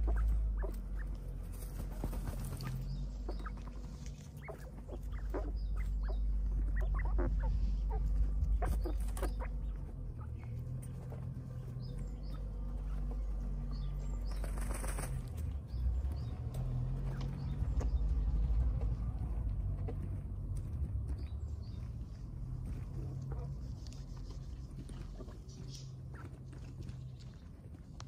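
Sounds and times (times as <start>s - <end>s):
birds fluttering and scuffing in dirt: 0.0s - 28.0s
wings flapping: 1.4s - 5.4s, 14.3s - 15.4s.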